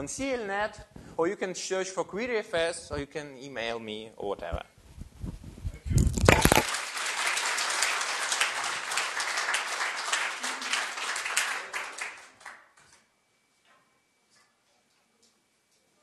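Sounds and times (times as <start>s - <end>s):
audience applauding: 6.3s - 12.9s.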